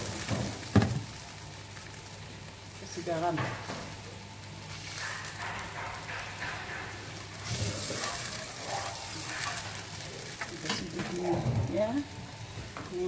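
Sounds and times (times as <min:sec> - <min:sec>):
sauce sizzling in a frying pan: 0:00.0 - 0:13.0.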